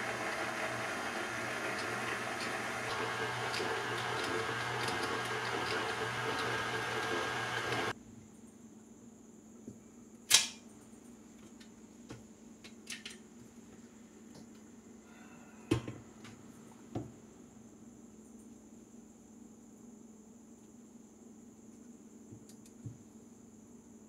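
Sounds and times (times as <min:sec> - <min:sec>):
stand mixer motor running: 0:00.0 - 0:07.9.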